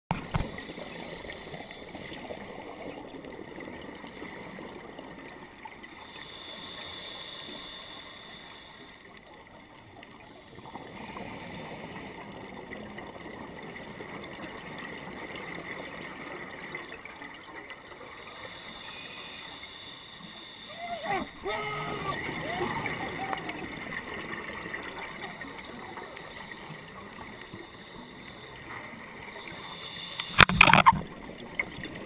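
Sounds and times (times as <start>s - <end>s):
regulator hiss: 6.0s - 9.1s, 18.0s - 21.5s, 25.4s - 30.6s
diver bubbling exhalations underwater: 20.7s - 26.0s.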